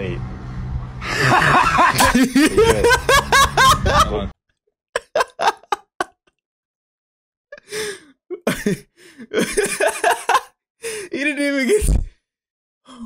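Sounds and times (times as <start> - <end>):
street traffic hum: 0.0 - 4.3
man laughing hard: 1.0 - 4.3, 5.0 - 6.2, 7.7 - 11.0.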